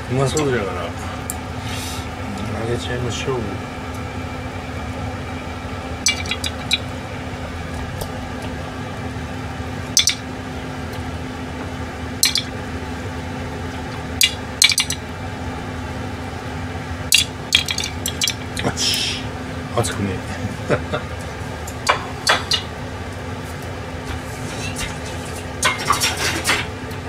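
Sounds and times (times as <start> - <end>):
low hum: 0.0 - 27.0
skewers clinking on metal and plate: 6.1 - 6.8, 14.2 - 15.0.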